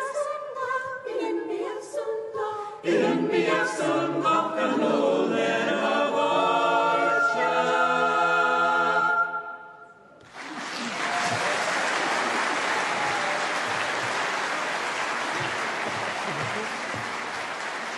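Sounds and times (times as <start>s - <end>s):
choir holding a chord: 2.8s - 9.8s
audience applause: 10.2s - 17.9s
hall reverberation: 12.2s - 17.9s.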